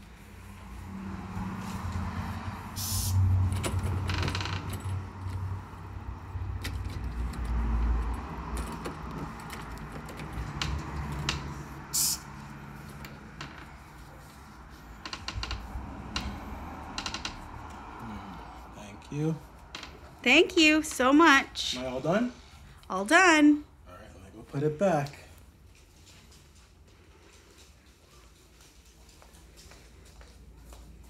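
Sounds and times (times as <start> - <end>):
spray bottle hissing: 2.8 - 3.2, 11.9 - 12.3.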